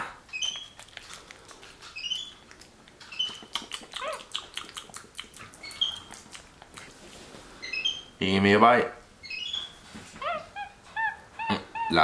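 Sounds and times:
monkey high-pitched chirps: 0:00.3 - 0:00.9, 0:01.9 - 0:02.4, 0:03.1 - 0:05.0, 0:05.6 - 0:06.2, 0:07.6 - 0:08.1, 0:09.2 - 0:12.0
wet clicking and lip-smacking: 0:00.3 - 0:07.0.

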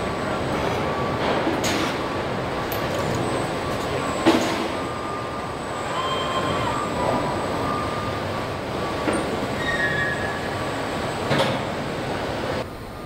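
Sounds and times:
faint high whines: 0:03.1 - 0:11.3.

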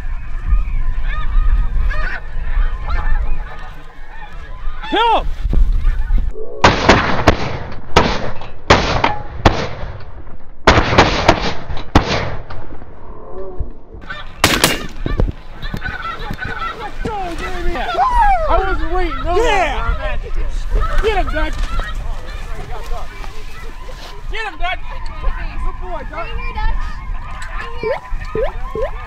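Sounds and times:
geese calling: 0:00.0 - 0:06.4, 0:14.0 - 0:29.0
shotgun shots: 0:06.6 - 0:10.0, 0:10.6 - 0:12.4, 0:14.4 - 0:15.1.

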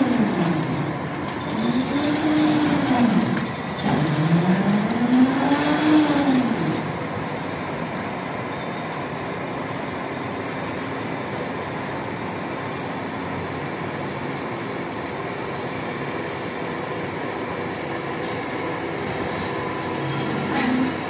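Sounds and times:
heavy machinery noise: 0:00.0 - 0:21.0.

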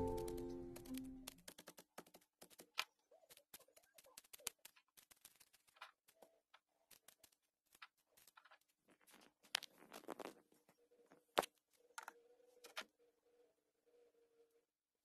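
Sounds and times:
clicks taps and rustles of handling: 0:00.0 - 0:12.9.

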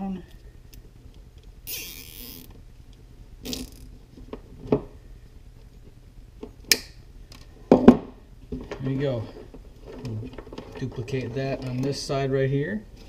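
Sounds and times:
zip tie zipping rasp: 0:01.7 - 0:02.5, 0:03.4 - 0:03.9.

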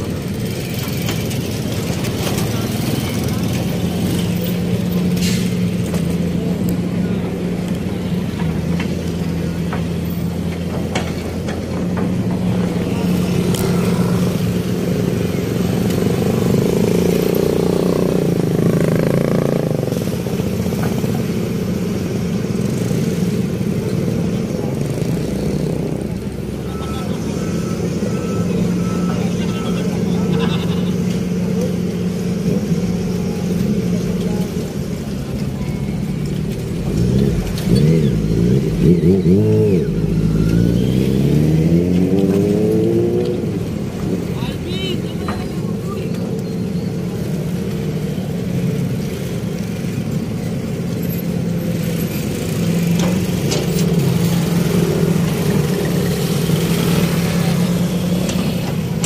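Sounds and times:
motorcycles and traffic passing: 0:00.0 - 0:59.0
faint beeps: 0:26.4 - 0:31.4.

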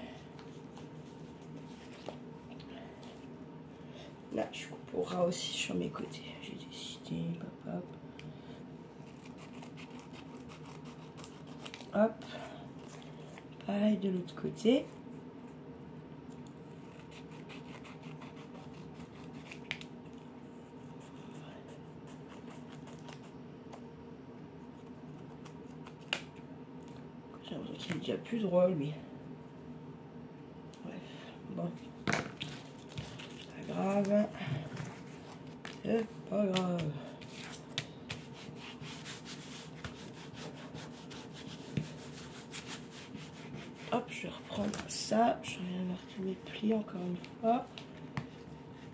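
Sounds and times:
low room hum: 0:00.0 - 0:48.9
hands rubbing and rustling paper: 0:32.2 - 0:44.8.

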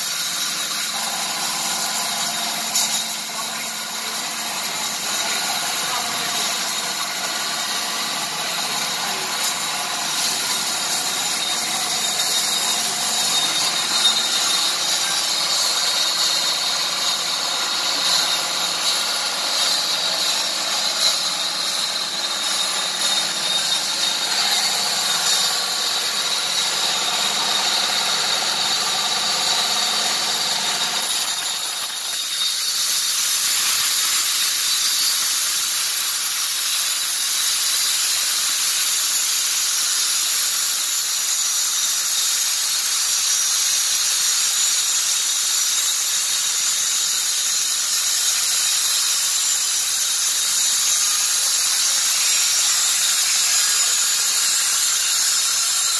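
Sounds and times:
sawmill machine hum: 0:00.0 - 0:55.9.

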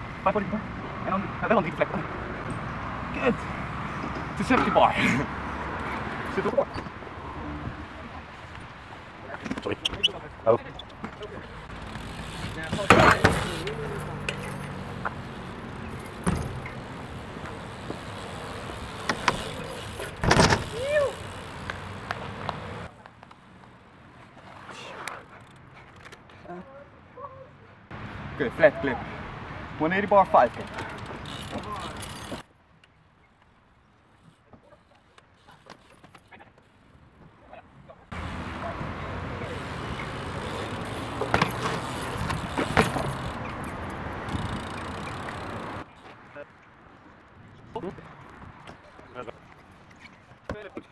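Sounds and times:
bike tyres rolling: 0:02.4 - 0:25.7, 0:30.1 - 0:32.5, 0:38.1 - 0:46.2.

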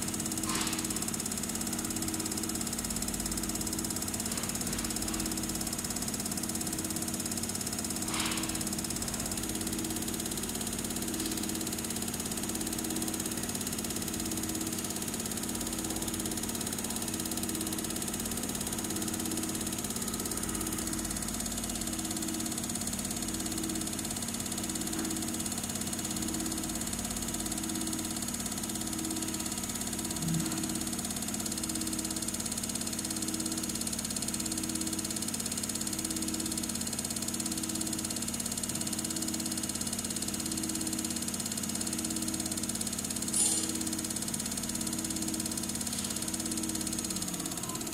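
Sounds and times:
machine hum: 0:28.8 - 0:31.8.

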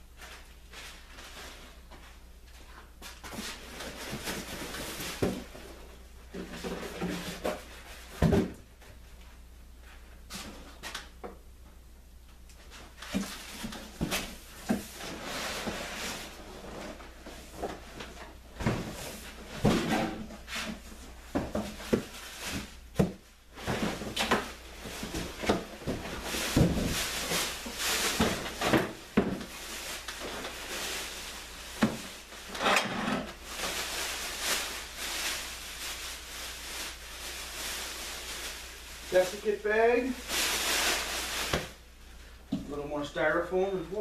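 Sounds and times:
plastic bag rustling: 0:12.6 - 0:42.4.

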